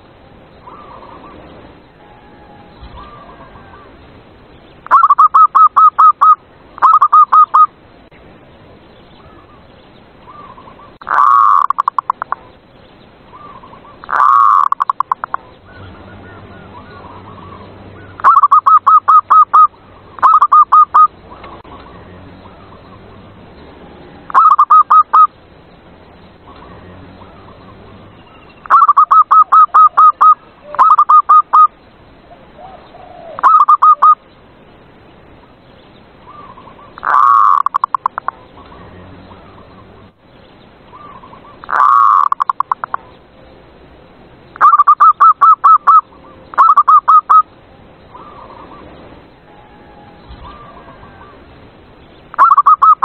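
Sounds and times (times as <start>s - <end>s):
harsh dove calls: 0.6s - 4.0s, 4.8s - 7.8s, 9.2s - 12.6s, 13.2s - 25.4s, 26.4s - 34.2s, 36.2s - 40.1s, 40.9s - 43.2s, 44.5s - 51.5s, 52.3s - 53.0s
dove cooing: 2.0s - 4.0s, 4.9s - 7.7s, 10.3s - 12.5s, 13.4s - 22.9s, 24.2s - 25.3s, 28.7s - 31.7s, 32.3s - 34.2s, 36.3s - 38.7s, 41.0s - 43.1s, 44.6s - 47.5s, 49.5s - 51.5s, 52.4s - 53.0s.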